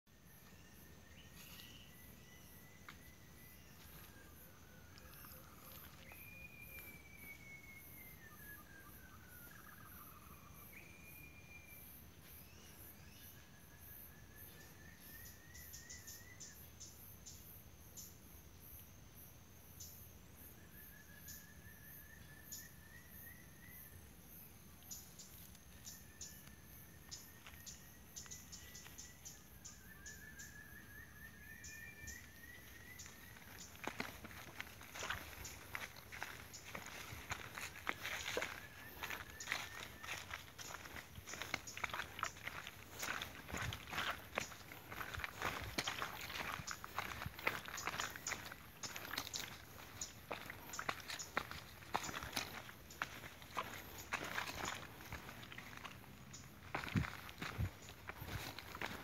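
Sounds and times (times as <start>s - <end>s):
birds calling: 31.6s - 59.0s
insects shrilling: 33.0s - 59.0s.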